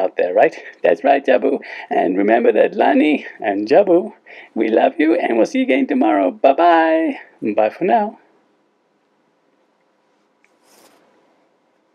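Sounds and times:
soft rustle: 0:09.8 - 0:11.9.

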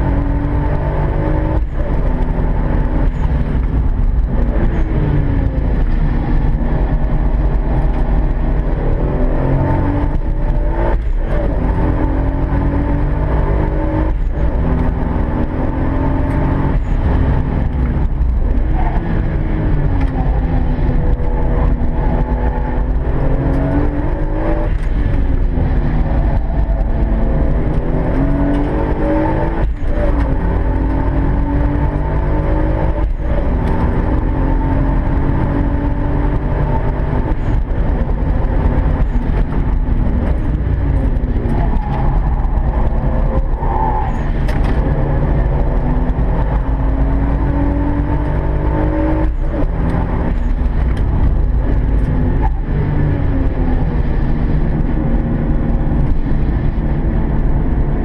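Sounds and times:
car engine accelerating hard: 0:00.0 - 0:58.0.

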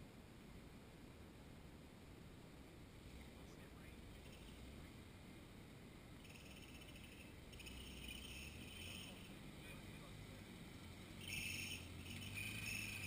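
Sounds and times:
insects chirring: 0:04.0 - 0:05.3, 0:06.1 - 0:13.0.

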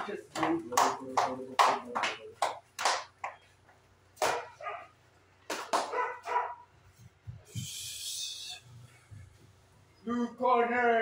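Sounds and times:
gloved punches slapping: 0:04.2 - 0:04.5.

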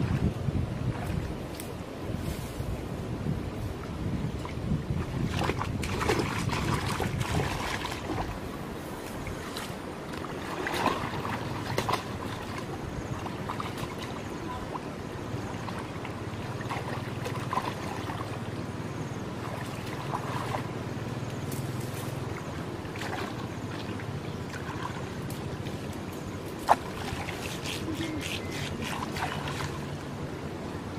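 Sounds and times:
wind on microphone: 0:00.0 - 0:30.9
brush and grass rustling: 0:00.9 - 0:03.8, 0:21.4 - 0:22.3
muddy water sloshing: 0:04.3 - 0:30.1.

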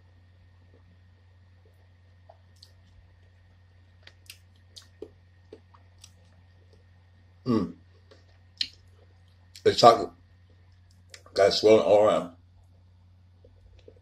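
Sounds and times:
man chewing chocolate: 0:00.6 - 0:07.0, 0:07.8 - 0:09.6, 0:13.4 - 0:14.0
mouth clicks and smacks: 0:01.6 - 0:06.9, 0:07.8 - 0:09.7, 0:10.4 - 0:11.4, 0:13.4 - 0:14.0.

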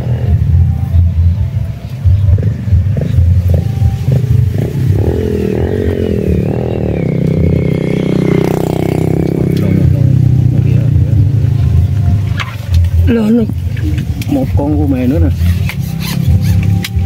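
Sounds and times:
engine rumbling and humming: 0:00.0 - 0:17.0.

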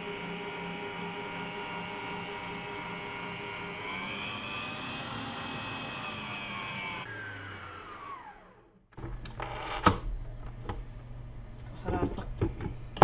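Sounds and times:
stand mixer motor whine: 0:00.0 - 0:08.9.

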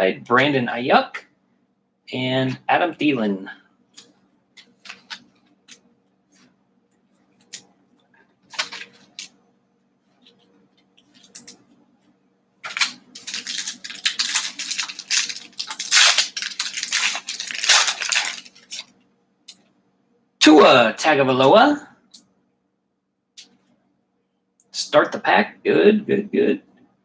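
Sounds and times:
foil wrapper crinkling: 0:08.5 - 0:09.3, 0:12.6 - 0:18.9.

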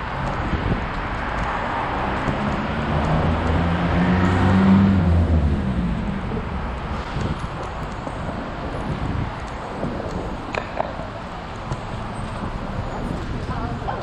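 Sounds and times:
vehicle engine passing: 0:01.7 - 0:07.6.

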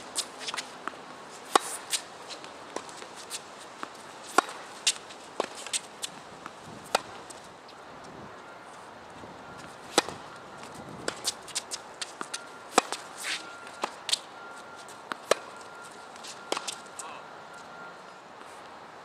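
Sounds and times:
tennis racket hitting ball: 0:00.0 - 0:07.4, 0:09.6 - 0:10.4, 0:11.0 - 0:14.3, 0:15.1 - 0:15.6, 0:16.2 - 0:16.9
tennis ball bouncing: 0:00.0 - 0:07.5, 0:09.5 - 0:17.0.

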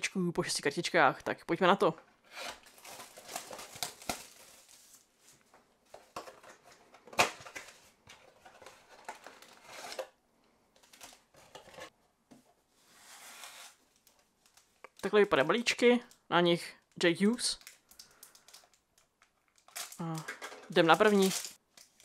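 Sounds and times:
foil packs rustling: 0:02.5 - 0:05.4, 0:19.6 - 0:22.0.

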